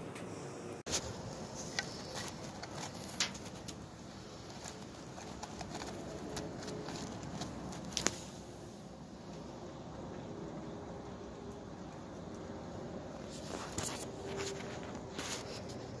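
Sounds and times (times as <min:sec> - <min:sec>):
fingers picking wood chips: 0:00.9 - 0:08.4.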